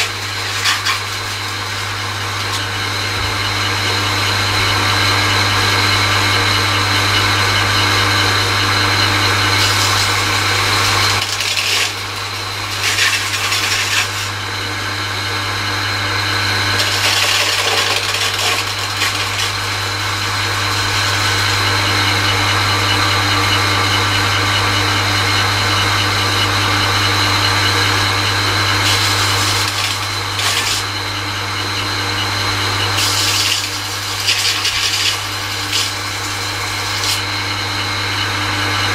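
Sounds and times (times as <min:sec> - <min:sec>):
tool bit grinding rasp: 0:00.0 - 0:02.8, 0:09.4 - 0:14.4, 0:16.5 - 0:21.5, 0:28.6 - 0:31.0, 0:32.9 - 0:37.3
grinder motor humming: 0:00.0 - 0:38.9.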